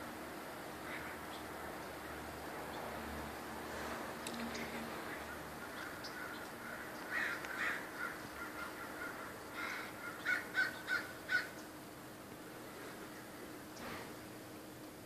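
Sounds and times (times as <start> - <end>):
crows cawing harshly: 0.8 - 1.3, 5.2 - 11.6.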